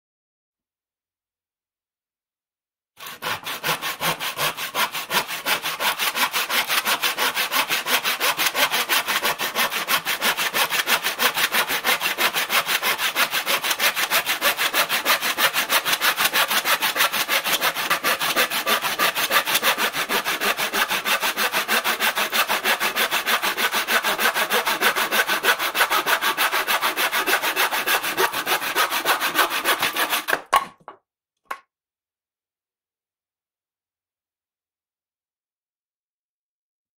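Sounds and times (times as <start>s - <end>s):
handsaw cutting wood: 3.0s - 30.9s.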